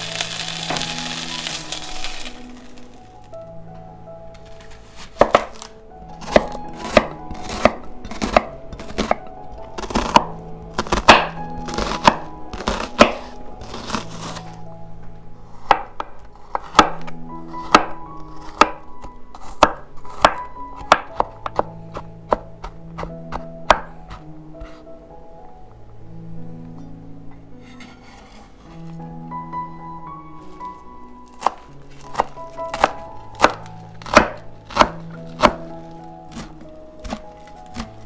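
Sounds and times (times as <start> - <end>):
background music: 0.0 - 38.0
knife chopping on cutting board: 4.9 - 9.2, 9.8 - 14.4, 15.6 - 18.8, 19.4 - 24.8, 31.3 - 38.0.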